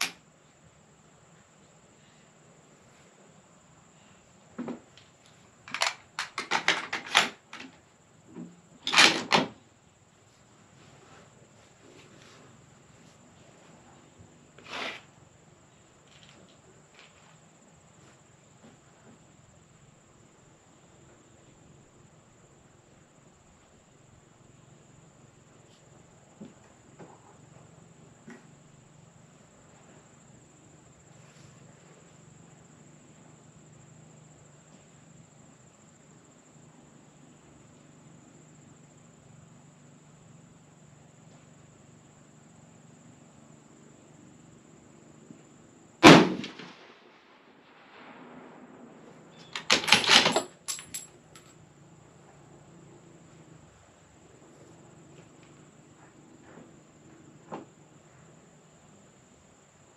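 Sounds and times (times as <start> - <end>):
crickets chirring: 0.0 - 59.9
rifle mechanical clicks and knocks: 5.7 - 7.8, 49.4 - 51.5.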